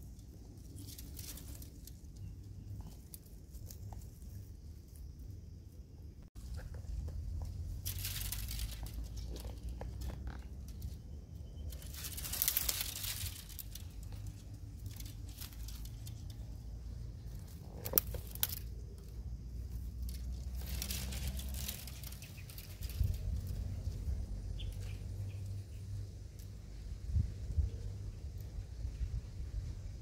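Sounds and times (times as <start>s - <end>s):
leaves and branches rustling: 0.0s - 30.0s
low steady rumble: 0.0s - 30.0s
branch snapping: 0.8s - 1.9s, 7.8s - 11.0s, 11.7s - 16.7s, 17.3s - 19.1s, 19.7s - 23.9s.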